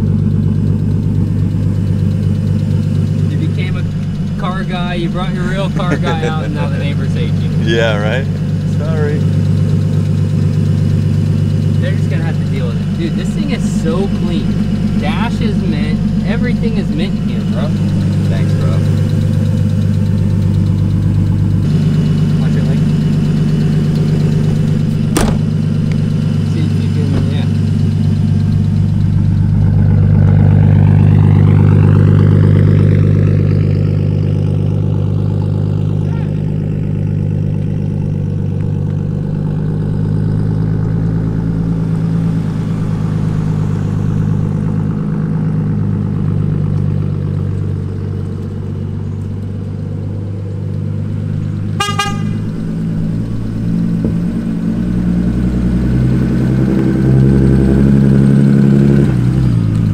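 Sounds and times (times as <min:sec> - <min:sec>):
car engine running: 0:00.0 - 0:59.9
high-pitched toot: 0:51.8 - 0:52.4.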